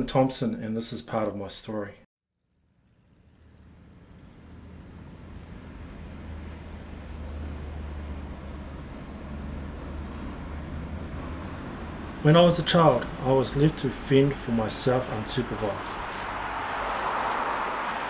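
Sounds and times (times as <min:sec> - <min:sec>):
passing vehicles: 0:03.0 - 0:18.0
bus engine rumble: 0:03.8 - 0:18.0.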